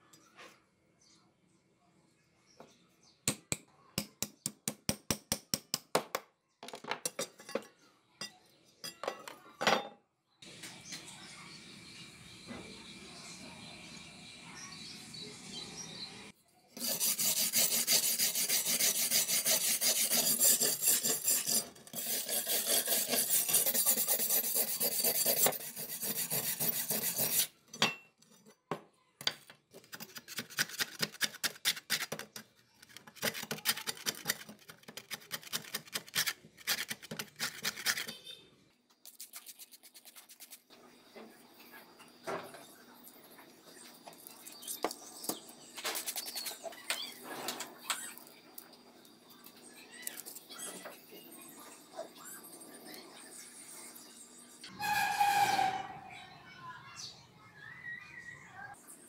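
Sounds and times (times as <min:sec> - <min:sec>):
wire brush scraping rusty metal: 0:16.8 - 0:27.6, 0:54.7 - 0:56.1.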